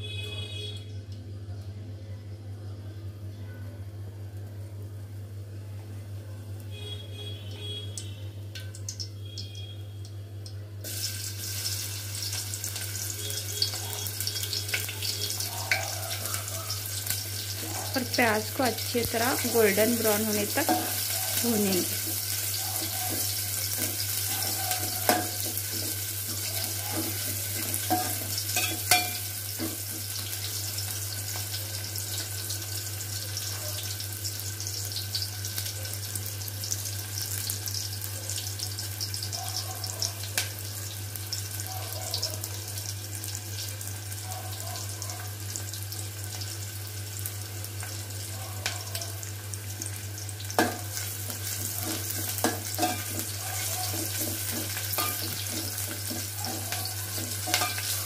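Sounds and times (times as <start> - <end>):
onions sizzling in oil: 6.6 - 58.0
spoon scraping pot: 51.4 - 58.0.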